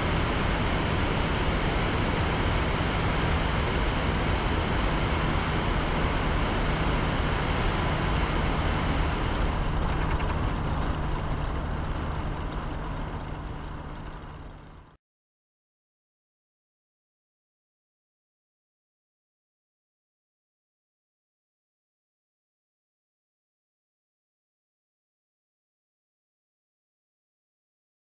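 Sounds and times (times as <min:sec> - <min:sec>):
wind rushing over camera: 0:00.0 - 0:14.5
two-stroke aircraft engine running: 0:00.0 - 0:15.0.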